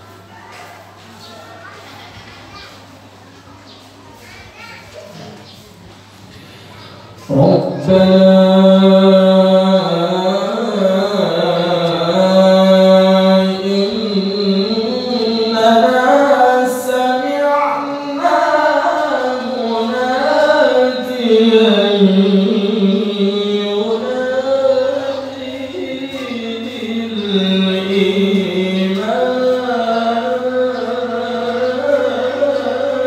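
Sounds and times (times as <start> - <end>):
man chanting melodically into microphone: 7.2 - 33.0.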